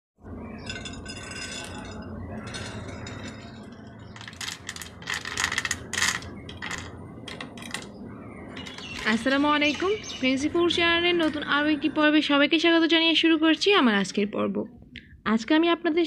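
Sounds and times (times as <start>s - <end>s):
chocolate chips clattering onto ceramic: 2.5s - 7.9s.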